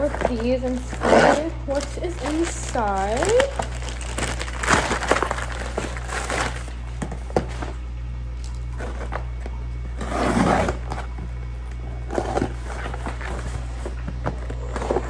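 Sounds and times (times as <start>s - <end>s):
plastic mailer bag crinkling: 0.0s - 9.5s
steady low hum: 0.0s - 15.0s.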